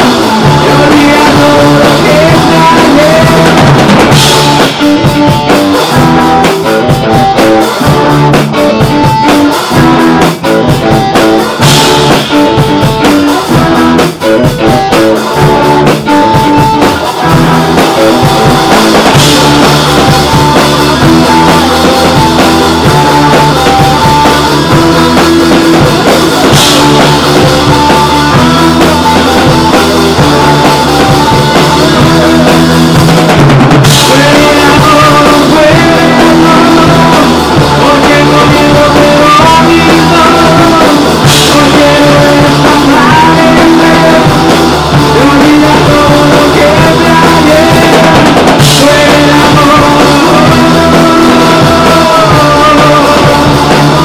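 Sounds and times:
rock band playing live: 0.0 - 54.0.

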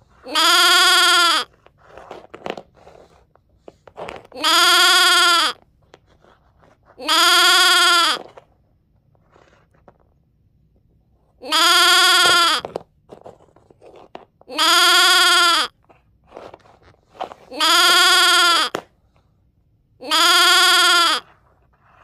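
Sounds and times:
animal bleat sound effect: 0.2 - 1.5, 4.4 - 5.6, 7.0 - 8.2, 11.4 - 12.7, 14.5 - 15.8, 17.5 - 18.8, 20.0 - 21.3.

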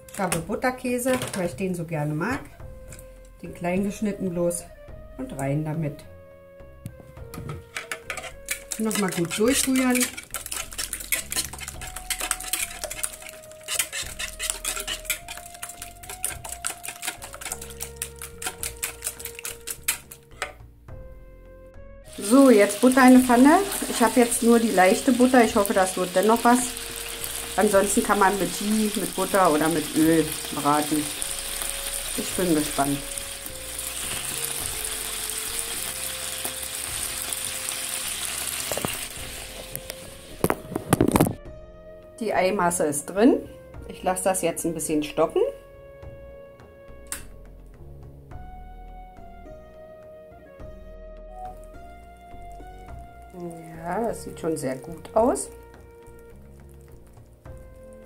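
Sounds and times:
whisk clicking against bowl: 7.8 - 20.6
butter sizzling in a frying pan: 8.1 - 20.2, 22.1 - 40.6.

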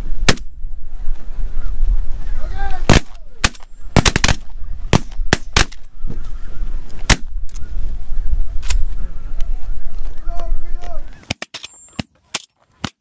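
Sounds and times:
shotgun blasts: 0.2 - 0.5, 2.9 - 5.9, 7.1 - 7.4.

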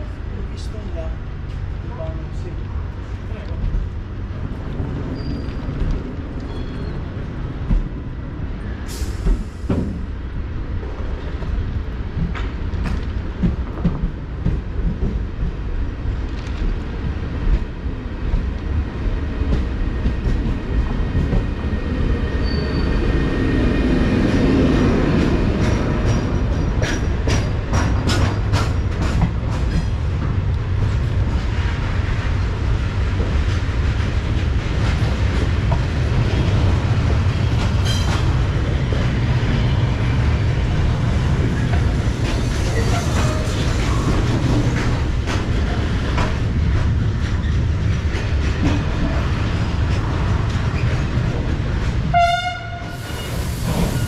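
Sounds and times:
train wheels rumbling on rails: 0.0 - 54.0
wheel squeal: 5.1 - 5.8, 6.5 - 7.0, 22.4 - 23.0.

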